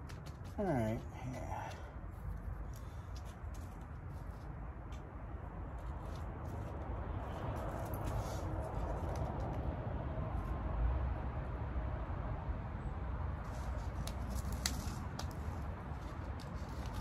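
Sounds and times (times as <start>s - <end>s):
leaves rustling and snapping: 13.5s - 17.0s.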